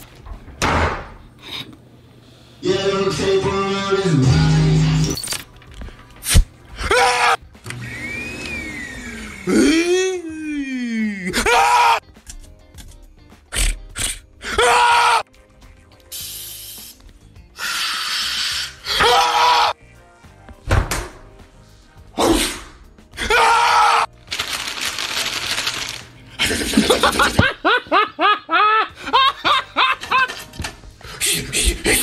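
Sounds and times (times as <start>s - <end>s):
person yelling harshly: 9.5s - 12.0s, 23.2s - 24.1s.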